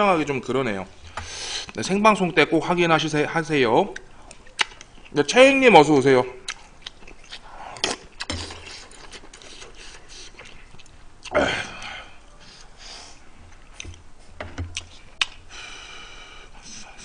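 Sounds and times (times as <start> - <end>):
chewing and slurping: 6.5 - 11.0.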